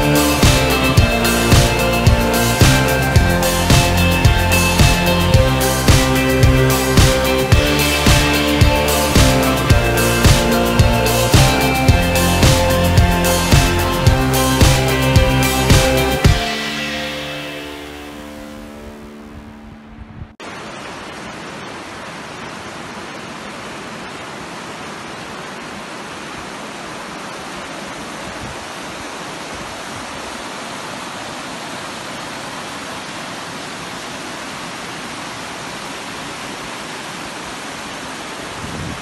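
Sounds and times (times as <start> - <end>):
river rushing over rocks: 20.4 - 39.0.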